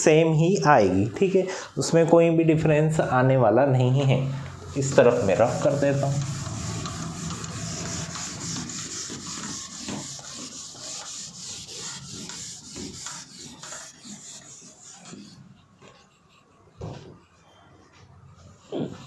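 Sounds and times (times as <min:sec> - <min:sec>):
eraser rubbing on whiteboard: 0:04.5 - 0:19.0.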